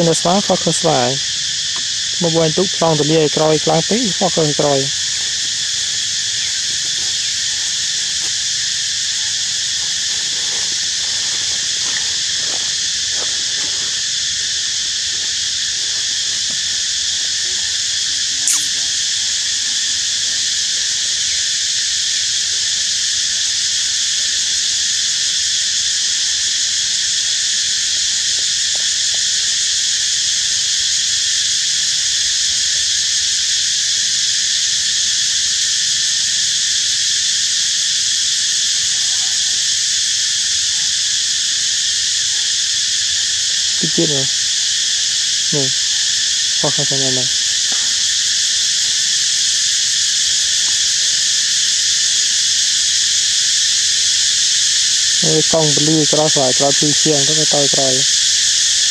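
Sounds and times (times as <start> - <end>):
high-pitched insect chorus: 0.0 - 58.9
sharp click: 18.4 - 19.0.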